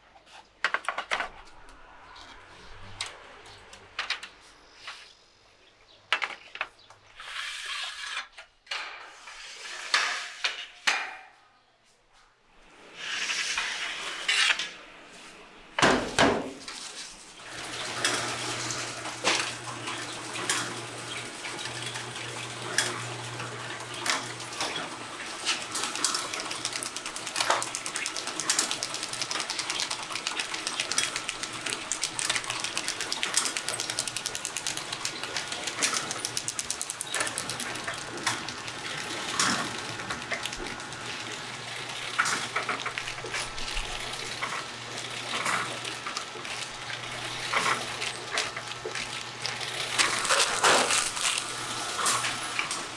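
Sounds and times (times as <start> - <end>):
machinery small clicks and ticks: 20.4 - 52.8.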